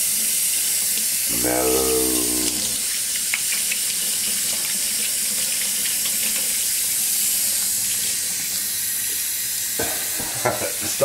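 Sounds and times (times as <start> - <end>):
faucet running into a metal sink: 2.8 - 10.3.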